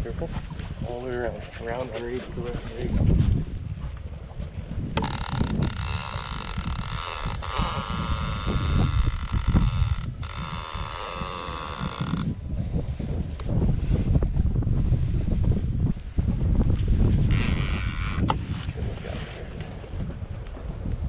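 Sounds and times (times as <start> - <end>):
fishing reel drag buzzing: 5.0 - 12.4, 17.3 - 18.4.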